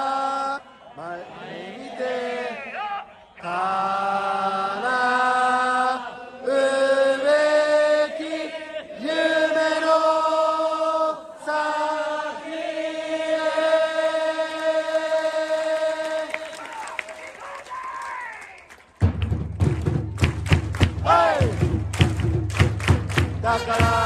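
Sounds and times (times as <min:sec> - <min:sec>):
crowd singing in unison: 0:00.0 - 0:16.6, 0:21.0 - 0:21.9, 0:23.0 - 0:24.0.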